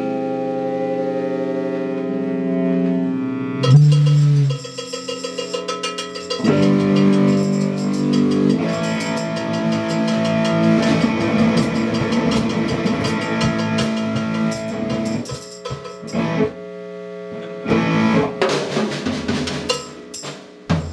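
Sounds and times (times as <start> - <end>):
sustained guitar notes: 0.0 - 20.2
drum kit playing: 3.6 - 16.6, 17.7 - 20.9.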